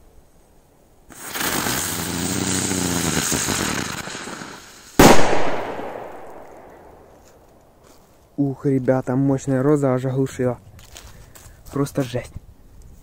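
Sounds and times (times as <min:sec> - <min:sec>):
firecracker hissing and whistling: 0:01.1 - 0:06.8
firecracker bang: 0:05.0 - 0:07.1.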